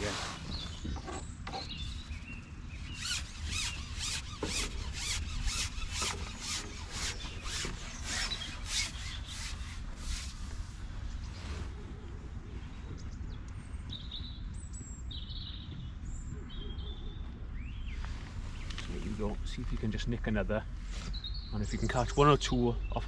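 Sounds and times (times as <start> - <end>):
fishing pole scraping through hands: 0.0 - 2.1, 3.0 - 10.8.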